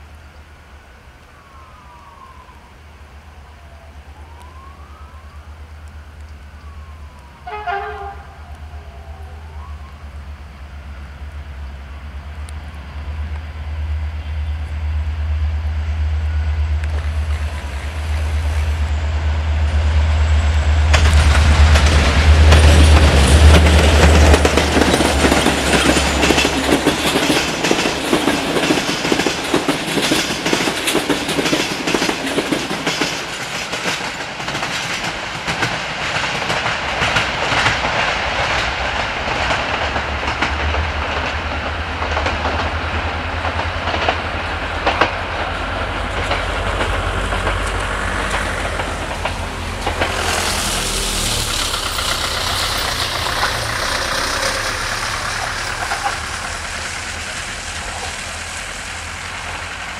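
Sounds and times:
diesel locomotive engine drone: 0:00.0 - 0:59.9
locomotive horn blast: 0:07.4 - 0:08.8, 0:50.0 - 0:58.2
train coaches clattering over rails: 0:19.6 - 0:59.9.

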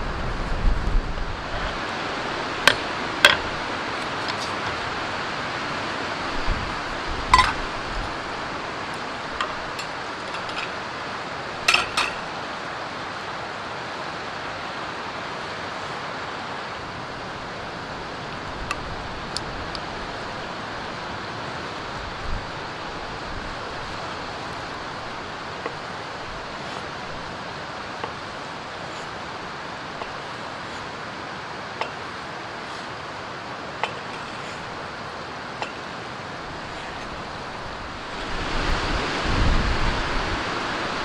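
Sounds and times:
metal bowl and chopsticks clinking: 0:09.4 - 0:10.8, 0:11.6 - 0:12.3.

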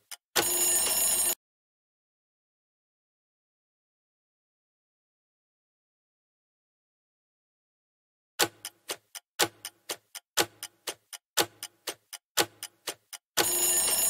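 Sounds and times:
countdown timer ticking: 0:00.0 - 0:01.2, 0:08.4 - 0:14.0.

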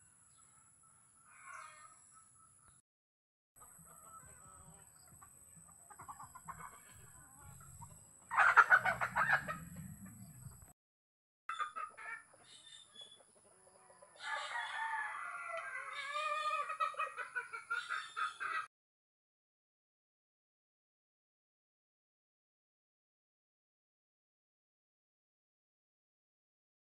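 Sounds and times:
chickens clucking: 0:03.6 - 0:10.7, 0:11.5 - 0:18.7
rooster crowing: 0:13.7 - 0:16.7.

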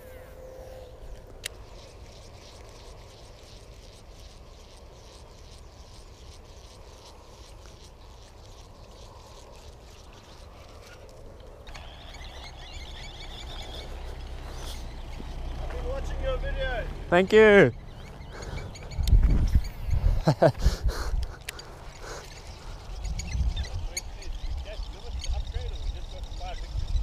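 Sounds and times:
fishing reel ticking: 0:01.4 - 0:14.0
wind rumble on microphone: 0:18.6 - 0:21.4, 0:22.5 - 0:27.0.

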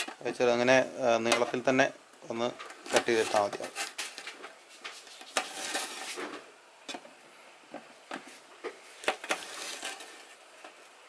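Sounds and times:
knife scraping on metal plate: 0:05.1 - 0:06.3, 0:09.0 - 0:10.4.

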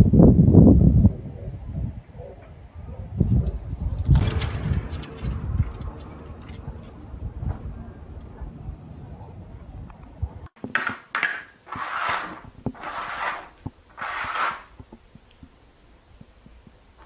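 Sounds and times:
plastic cups scraping on floor: 0:11.7 - 0:14.8.

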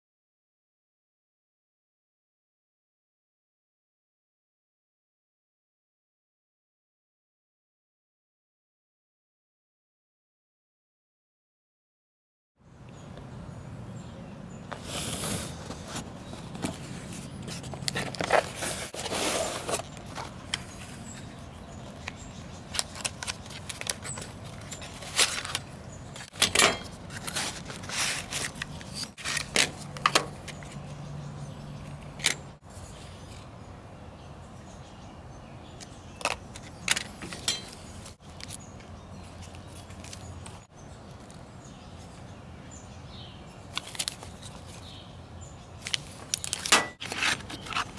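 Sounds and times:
packaging crinkling and rustling: 0:15.4 - 0:30.8, 0:43.7 - 0:44.9, 0:45.8 - 0:47.9.

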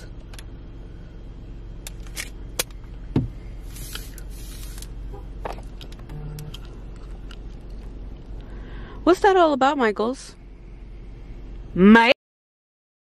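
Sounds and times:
low steady hum: 0:00.0 - 0:12.1
dull knock: 0:03.1 - 0:03.4.

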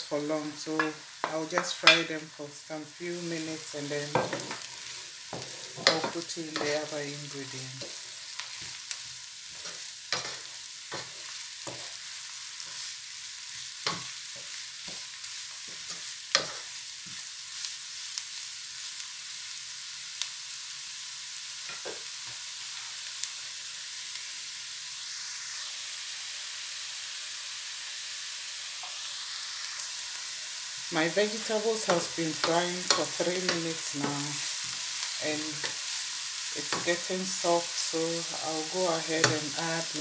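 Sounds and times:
vegetables sizzling in oil: 0:00.0 - 0:40.0
wooden spatula scraping a pan: 0:03.3 - 0:12.0.

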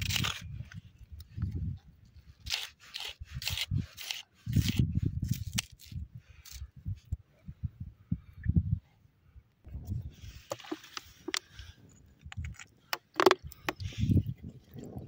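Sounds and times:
knife slicing onion: 0:02.4 - 0:06.6.

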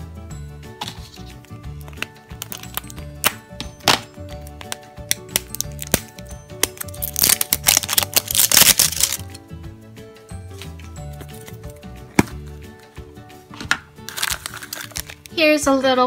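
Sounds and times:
background music: 0:00.0 - 0:16.0
plastic wrapper crinkling: 0:01.8 - 0:09.4, 0:14.1 - 0:15.4
scissors snipping plastic: 0:01.8 - 0:09.4, 0:14.1 - 0:15.3.

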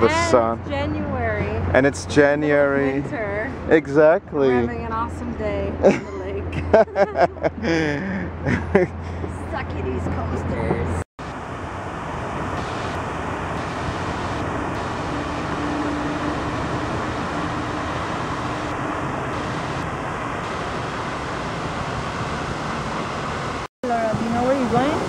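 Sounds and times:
fountain water jets rushing: 0:11.3 - 0:25.0.

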